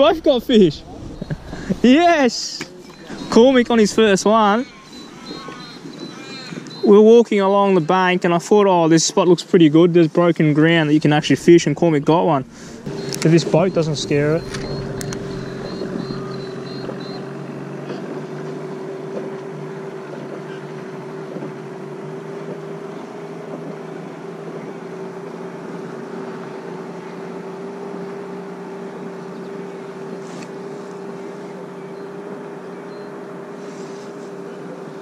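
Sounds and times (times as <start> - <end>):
outboard motor running: 0.0 - 9.0, 9.7 - 35.0.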